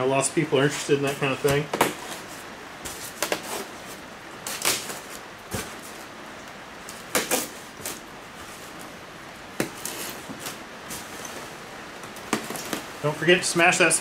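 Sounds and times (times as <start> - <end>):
rain hissing: 0.0 - 14.0
tape rasping on foam box: 2.9 - 3.7.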